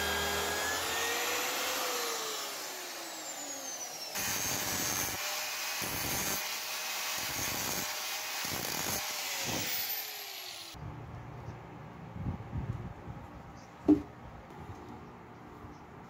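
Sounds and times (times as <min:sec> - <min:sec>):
angle grinder grinding steel: 0:00.0 - 0:10.8.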